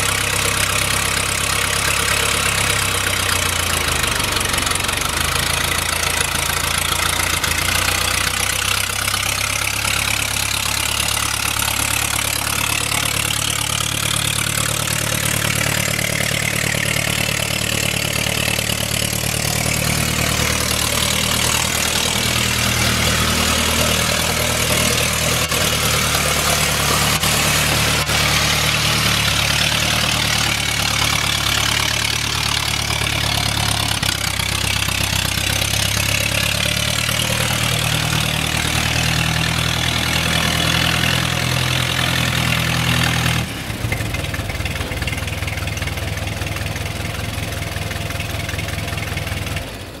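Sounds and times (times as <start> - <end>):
truck engine running: 0.0 - 50.0.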